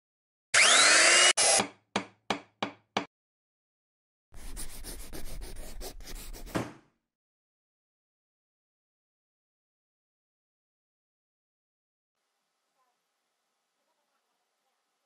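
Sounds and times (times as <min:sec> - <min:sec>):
saw whine: 0:00.5 - 0:01.6
scratchy rubbing: 0:04.4 - 0:06.6.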